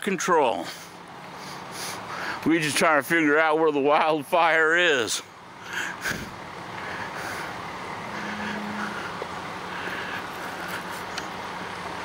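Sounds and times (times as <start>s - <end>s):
outdoor background noise: 0.0s - 12.0s
vehicle engine droning: 0.5s - 12.0s
short tone: 8.0s - 9.1s.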